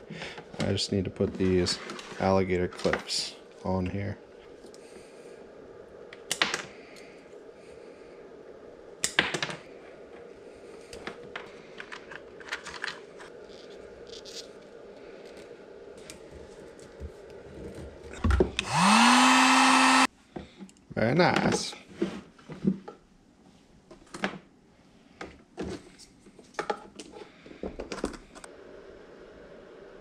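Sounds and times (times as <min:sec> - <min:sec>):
heat gun whining and blowing: 0:18.6 - 0:20.1.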